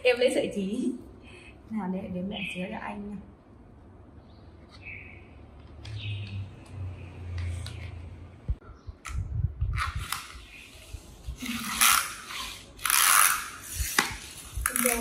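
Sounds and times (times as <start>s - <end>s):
toys scraping on foam mat: 9.8s - 15.0s.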